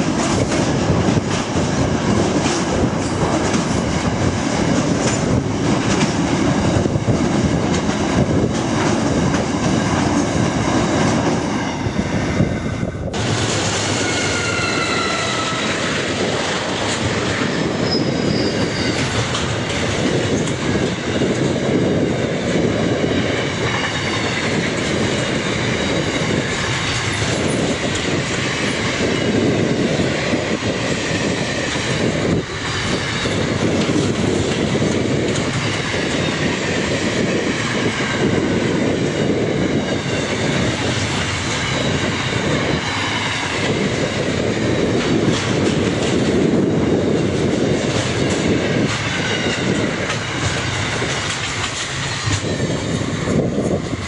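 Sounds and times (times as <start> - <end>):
freight train wheels rumbling: 0.0 - 54.0
high wheel squeals: 13.9 - 15.8, 17.6 - 19.3.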